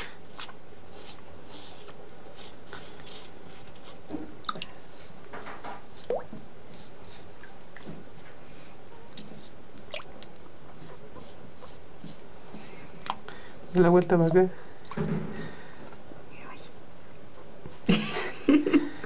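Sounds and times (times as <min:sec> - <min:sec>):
toothbrush scrubbing: 0:00.0 - 0:04.0, 0:04.8 - 0:09.6, 0:10.7 - 0:12.9.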